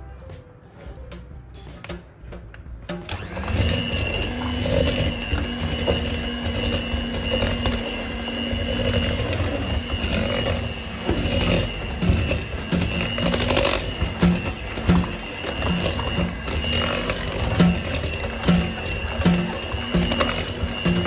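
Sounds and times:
electric hand mixer whining: 0:03.1 - 0:21.0.

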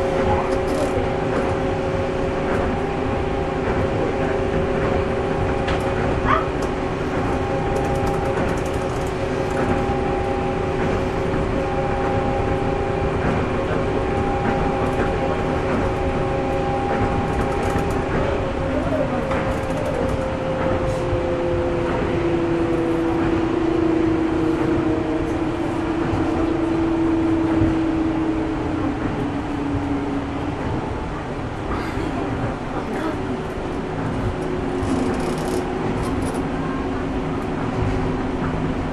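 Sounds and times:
monorail running gear rumble: 0:00.0 - 0:38.9.

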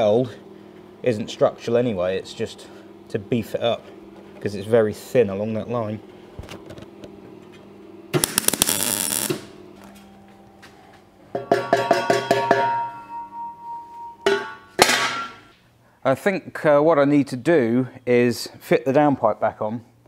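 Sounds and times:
metal exhaust pipe clanking: 0:11.3 - 0:13.1.

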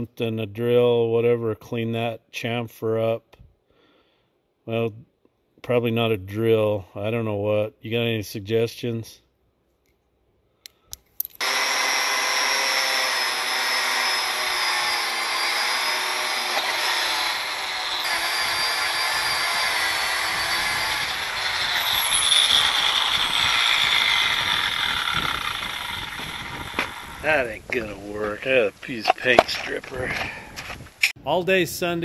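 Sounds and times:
electric power tool motor whine: 0:11.4 - 0:27.9.

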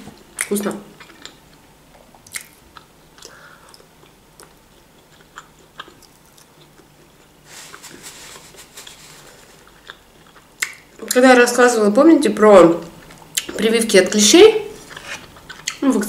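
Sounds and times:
person chewing food: 0:00.2 - 0:11.1, 0:14.8 - 0:15.8
mouth clicks and smacks: 0:02.0 - 0:04.6, 0:10.3 - 0:11.2.

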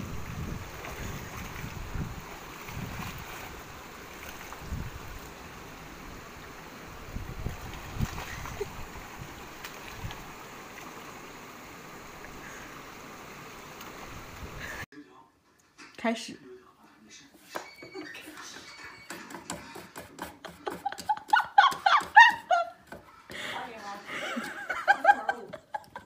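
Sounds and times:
water splashes: 0:00.0 - 0:14.8
stream running over rocks: 0:00.0 - 0:14.9.

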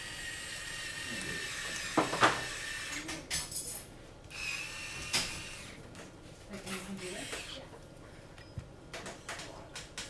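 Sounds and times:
electric screwdriver whirring: 0:04.3 - 0:05.8.

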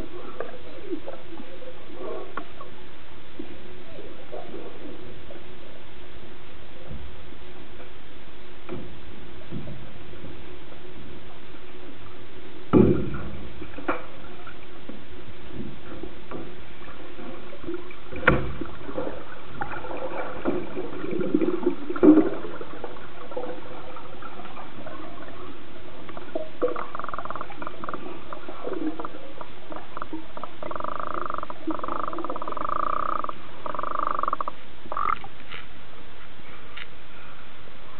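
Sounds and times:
underwater clicks and knocks: 0:12.7 - 0:22.8, 0:26.0 - 0:35.7
pitched underwater sounds: 0:16.0 - 0:35.6.

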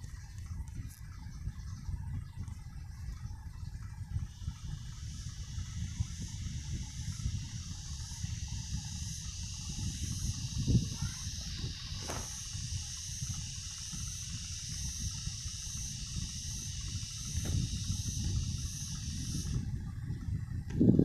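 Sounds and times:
low rumbling noise: 0:00.0 - 0:21.0
high-pitched hiss: 0:03.8 - 0:20.5.

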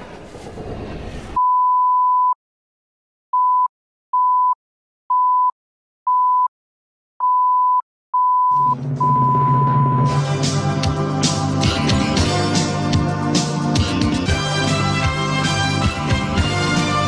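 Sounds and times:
electronic countdown beeps: 0:07.2 - 0:10.1
song music: 0:08.5 - 0:17.0.

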